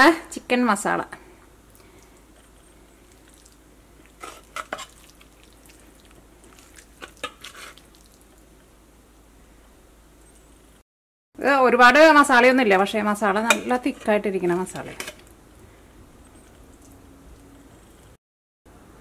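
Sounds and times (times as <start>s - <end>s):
faint steady hum: 0.0s - 10.8s, 11.4s - 19.0s
metal spoon scraping a pan: 4.2s - 5.1s, 6.9s - 7.8s, 13.3s - 15.3s.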